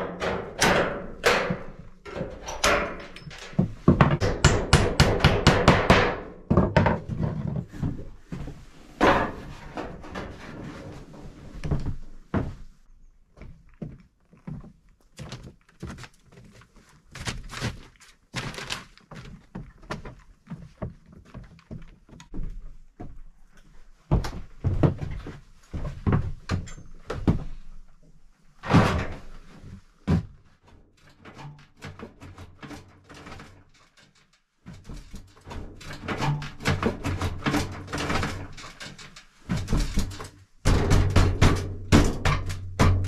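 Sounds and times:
metal stove knocks and clanks: 0.0s - 7.1s, 9.0s - 10.4s, 35.5s - 43.0s.

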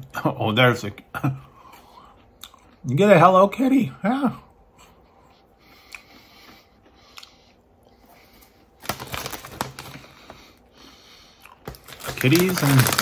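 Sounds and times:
crackers being chewed: 1.9s - 2.8s, 5.7s - 13.0s.

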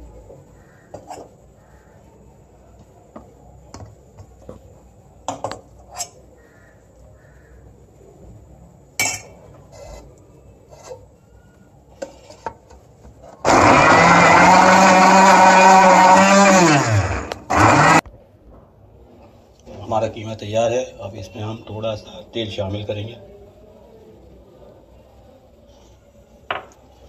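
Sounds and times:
metal spoon scraping and tapping pot: 9.0s - 10.1s.

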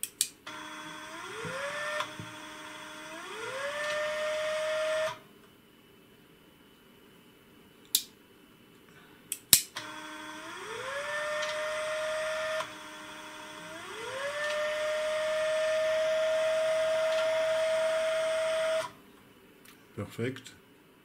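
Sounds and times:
stepper motor whine rising in pitch: 0.5s - 5.2s, 9.8s - 19.0s.

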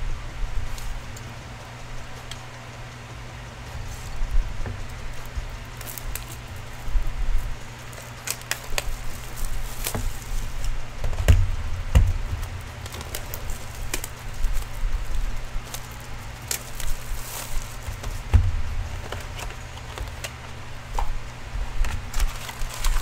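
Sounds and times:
plastic wrap crinkling: 3.7s - 23.0s
dull thumps: 9.8s - 15.0s, 17.3s - 20.2s.

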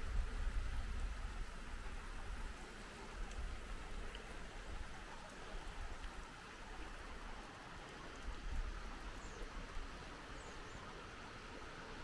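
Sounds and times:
wind buffeting microphone: 0.0s - 2.6s
steady rushing hiss: 0.0s - 12.0s.

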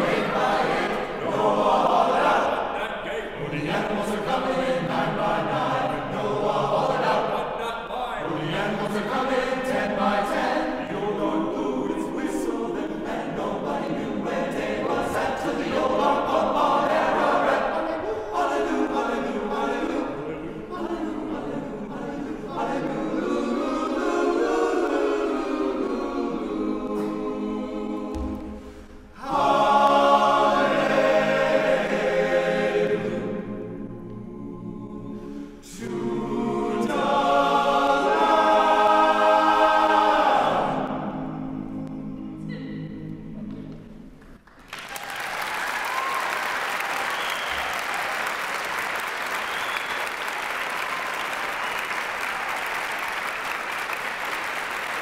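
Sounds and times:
male chorus singing a cappella: 0.0s - 43.8s.

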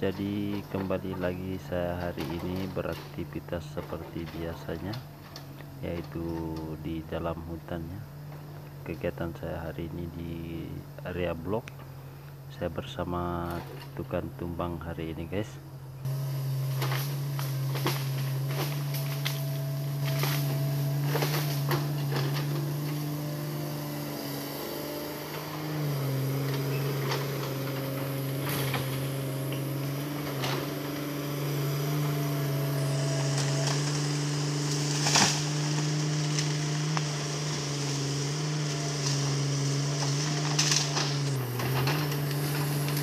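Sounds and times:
excavator diesel engine running: 0.0s - 43.0s.

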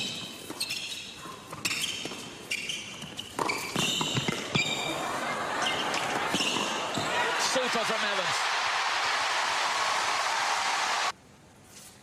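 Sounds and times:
shoes squeaking on court: 0.0s - 5.0s, 5.6s - 7.1s
ball bouncing: 3.3s - 4.7s
crowd noise: 4.6s - 11.2s.

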